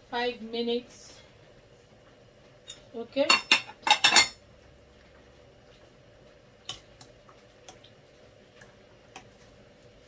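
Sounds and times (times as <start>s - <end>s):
faint steady hum: 0.0s - 10.0s
metal clanking against pot: 2.7s - 4.4s.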